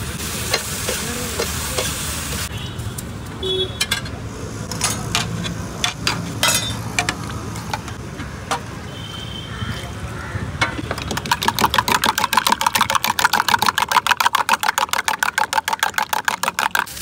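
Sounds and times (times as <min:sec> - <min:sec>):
meat sizzling on a griddle: 0:00.0 - 0:02.5
steel plates and cups clinking: 0:04.8 - 0:07.2.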